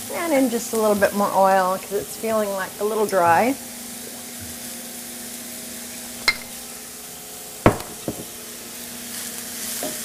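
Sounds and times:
vegetables sizzling in a skillet: 0:00.0 - 0:10.0
knocks: 0:07.7 - 0:08.3.

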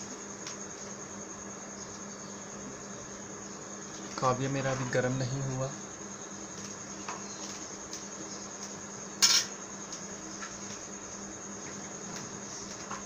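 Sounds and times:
crickets droning: 0:00.0 - 0:13.0
metal tools clattering: 0:09.2 - 0:09.5.

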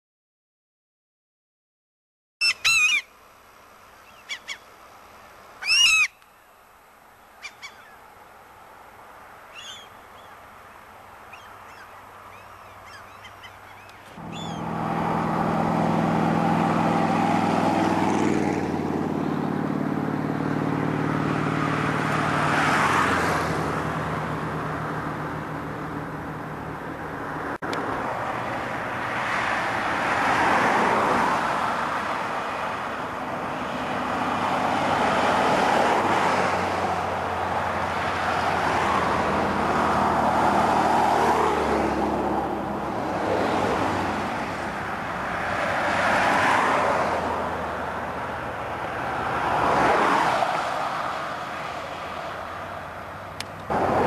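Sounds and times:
bird calling: 0:02.4 - 0:03.2, 0:04.0 - 0:04.8, 0:05.6 - 0:06.6, 0:07.2 - 0:08.2, 0:09.4 - 0:14.8
vehicle engine humming: 0:02.5 - 0:54.0.

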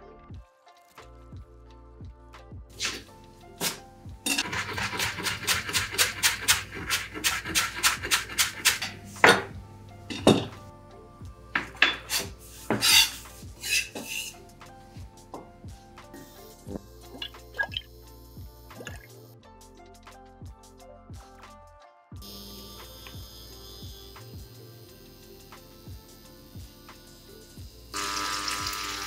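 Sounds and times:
knife scraping board: 0:02.8 - 0:09.5, 0:11.6 - 0:14.4
knife chopping on wooden board: 0:04.4 - 0:09.5, 0:11.6 - 0:14.3.

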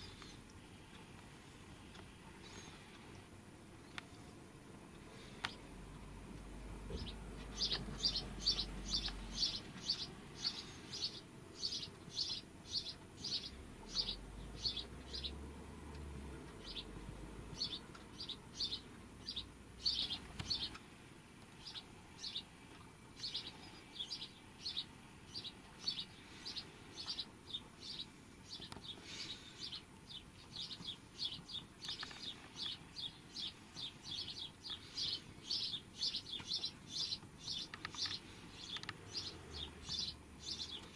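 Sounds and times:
small bird chirping: 0:06.8 - 0:15.5, 0:16.5 - 0:20.9, 0:21.5 - 0:40.9.

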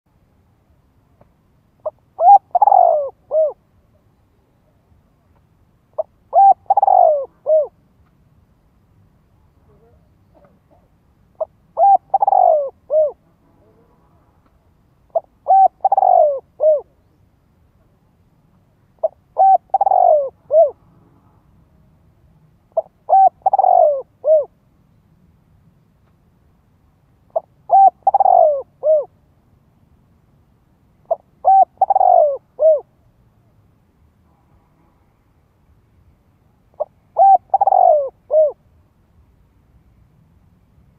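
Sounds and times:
dove cooing: 0:01.8 - 0:03.6, 0:06.0 - 0:07.8, 0:09.6 - 0:13.9, 0:15.1 - 0:17.1, 0:19.0 - 0:20.8, 0:22.8 - 0:24.5, 0:27.3 - 0:29.1, 0:31.0 - 0:32.9, 0:36.7 - 0:38.6.

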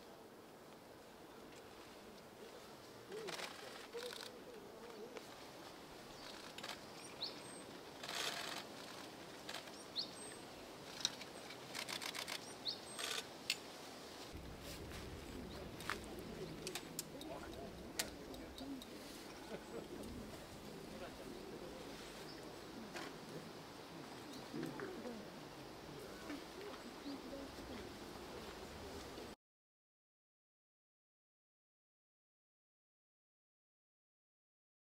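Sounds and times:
low rumble: 0:14.3 - 0:21.8.

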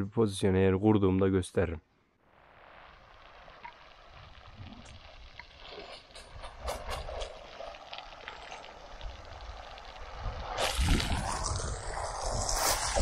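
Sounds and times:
hose water spattering on concrete: 0:02.9 - 0:13.0.

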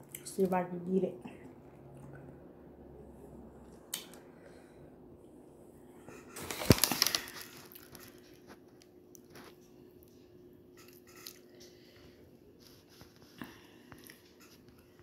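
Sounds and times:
plastic bag crinkling: 0:06.4 - 0:08.6.

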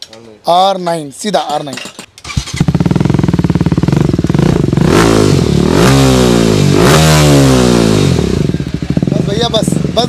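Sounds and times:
motorcycle engine starting and idling: 0:02.1 - 0:10.0
engine revving: 0:02.2 - 0:10.0.

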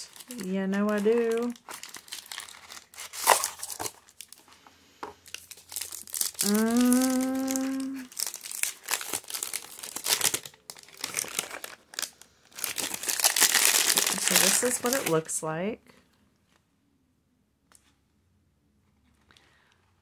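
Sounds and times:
paper wrapping crinkling: 0:00.0 - 0:04.6, 0:05.2 - 0:15.3
woman humming: 0:06.4 - 0:08.1.

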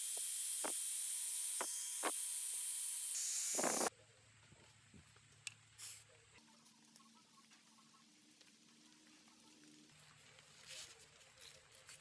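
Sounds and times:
angle grinder grinding steel: 0:00.0 - 0:03.9.

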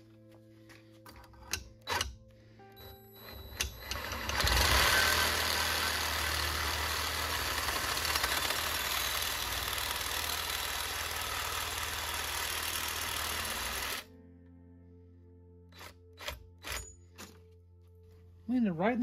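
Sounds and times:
reciprocating saw cutting metal tube: 0:03.6 - 0:14.1.

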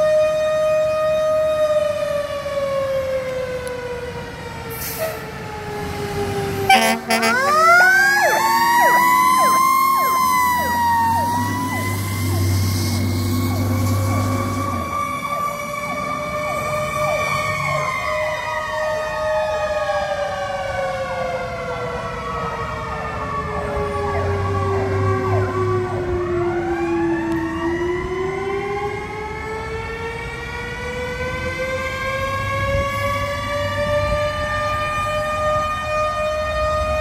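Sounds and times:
siren sweeping fast: 0:04.9 - 0:19.9
siren winding slowly: 0:06.7 - 0:18.0.

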